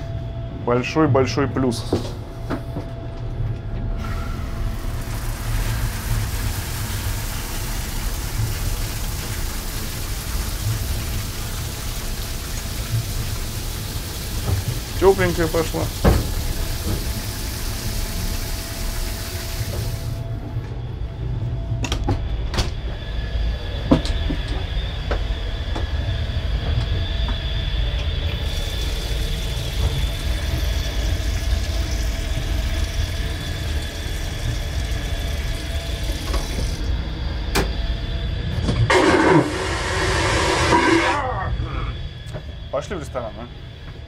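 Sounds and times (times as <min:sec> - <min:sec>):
tap running into metal basin: 0:04.0 - 0:20.2, 0:28.1 - 0:37.0
loud rushing noise: 0:38.9 - 0:41.3.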